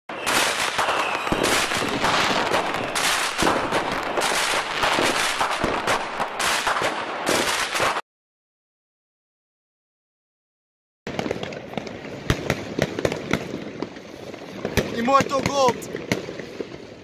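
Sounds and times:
firecrackers crackling: 0.1s - 8.0s, 11.1s - 17.0s.

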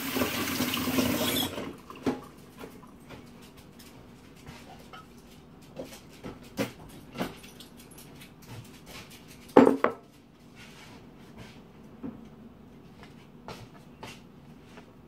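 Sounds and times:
ceramic bowl set on counter: 1.2s - 12.2s.

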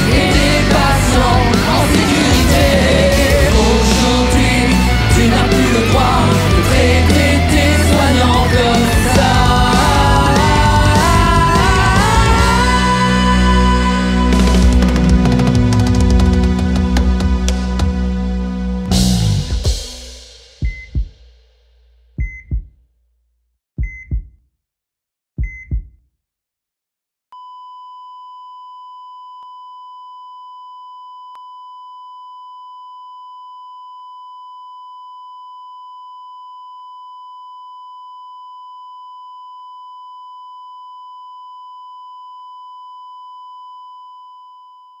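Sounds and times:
heart monitor beeps with thump: 20.6s - 21.0s, 22.2s - 22.7s, 23.8s - 24.4s, 25.4s - 26.0s, 27.4s - 45.0s.

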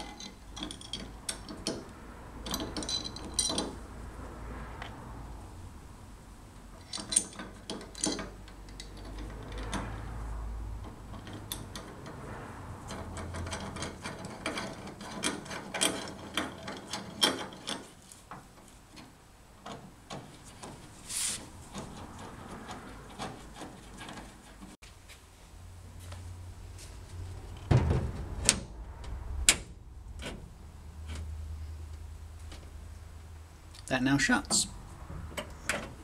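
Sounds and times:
metal clicks and scrapes: 0.0s - 3.8s, 6.7s - 9.9s, 10.8s - 24.8s, 28.4s - 32.0s.

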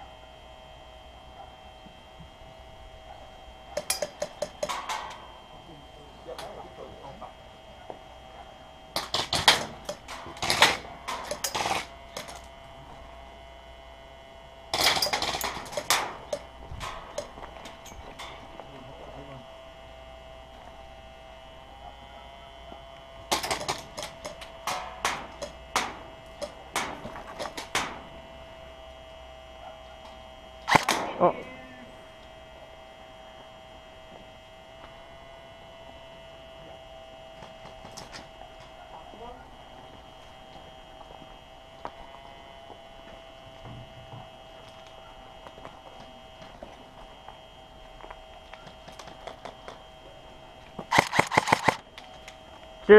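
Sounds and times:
faint electrical hum: 0.0s - 52.9s.

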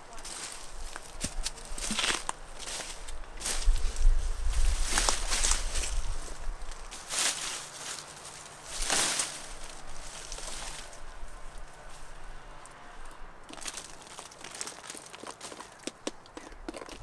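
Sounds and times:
squash leaves rustling: 0.0s - 17.0s
small crackles: 11.8s - 17.0s.

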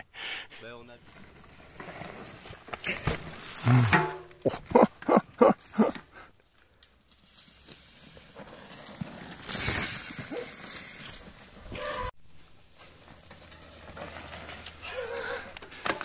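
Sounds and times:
bike tyres skidding through dirt: 0.8s - 4.1s, 7.0s - 16.0s.

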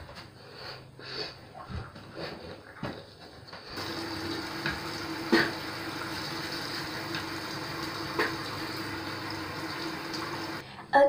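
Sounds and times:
water running from sink tap: 3.8s - 10.6s.

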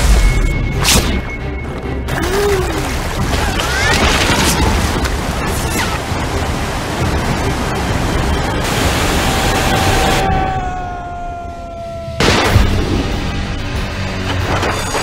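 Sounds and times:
water splashes: 2.1s - 10.2s
rushing white water: 2.1s - 12.1s.

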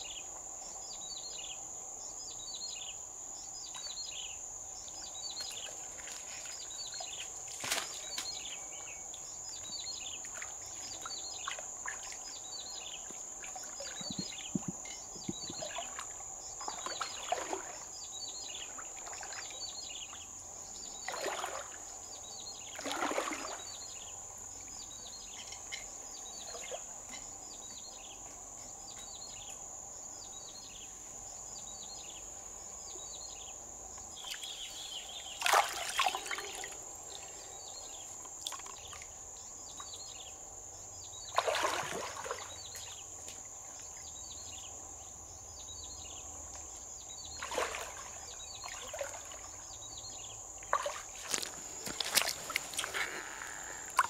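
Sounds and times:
river water splashing: 5.4s - 8.8s, 9.5s - 20.2s, 20.8s - 24.0s, 35.2s - 37.0s, 41.3s - 44.0s, 47.2s - 54.0s
bird calling: 50.8s - 54.0s.

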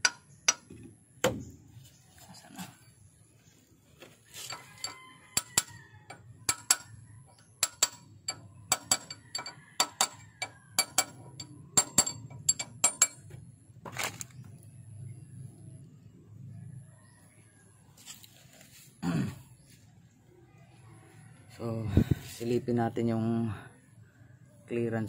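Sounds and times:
tool clinking on metal: 4.4s - 13.4s.

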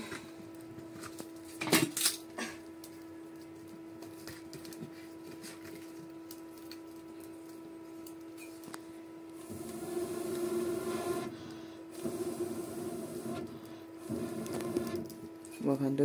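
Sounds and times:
faint steady hum: 0.0s - 16.0s
wood fire cracking: 9.3s - 15.5s.

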